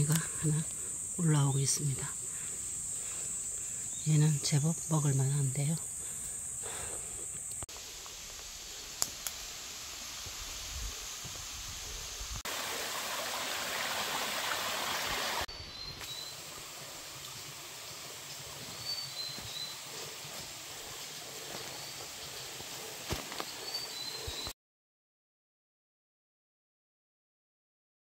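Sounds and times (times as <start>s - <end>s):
mountain stream rushing over rocks: 12.5s - 15.5s
bird chirping: 15.5s - 16.5s, 17.9s - 20.2s, 23.4s - 24.5s.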